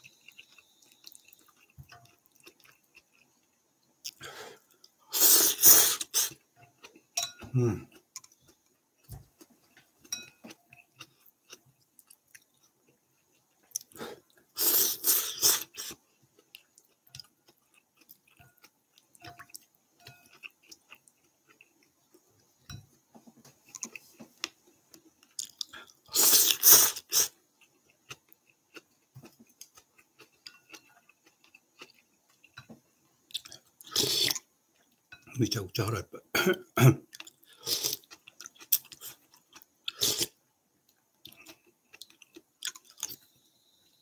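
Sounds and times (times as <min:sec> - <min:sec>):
quiet chewing: 0:00.0 - 0:35.4, 0:37.0 - 0:43.8
slurping noodles: 0:05.1 - 0:06.4, 0:14.0 - 0:16.0, 0:26.1 - 0:27.4, 0:33.8 - 0:34.4, 0:37.5 - 0:38.1.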